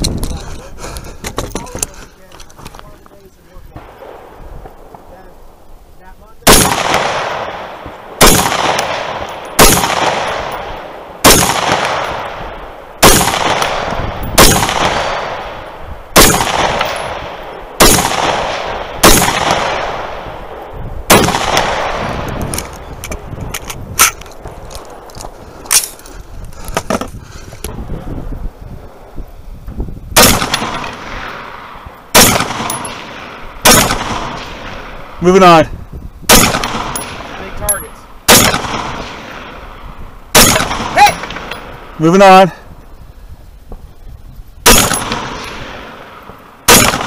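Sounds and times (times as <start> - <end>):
rifle shots echoing: 6.4 - 23.2, 30.2 - 35.6, 36.3 - 42.5, 44.6 - 47.0.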